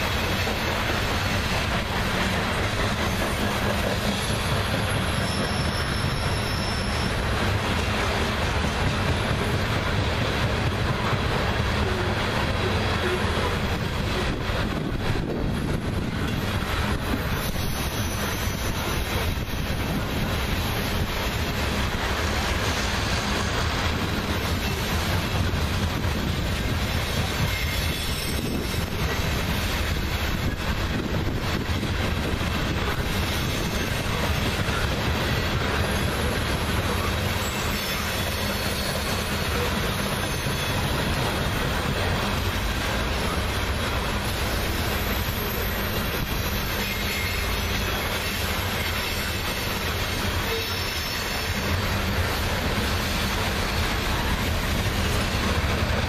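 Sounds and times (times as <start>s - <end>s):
train wheels rumbling on rail: 0.0s - 56.0s
faint wheel squeal: 3.0s - 7.3s, 27.4s - 29.2s, 35.7s - 41.0s, 44.6s - 49.7s.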